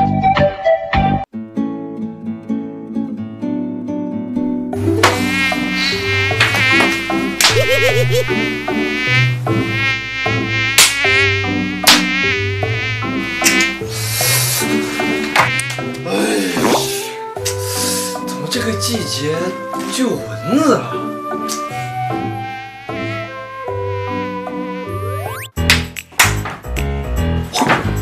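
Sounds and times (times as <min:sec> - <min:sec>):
mosquitoes whining: 0:05.1 - 0:18.3, 0:21.0 - 0:25.4.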